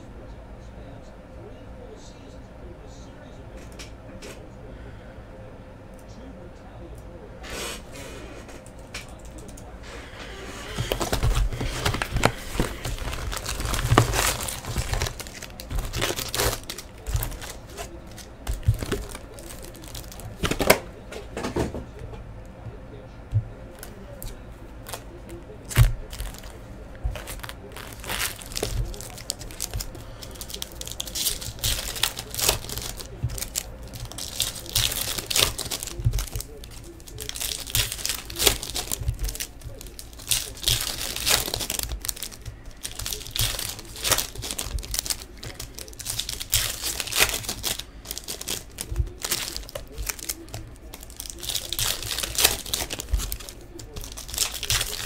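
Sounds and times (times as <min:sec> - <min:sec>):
foil wrappers crinkling: 0:09.2 - 0:21.1, 0:23.6 - 0:55.0.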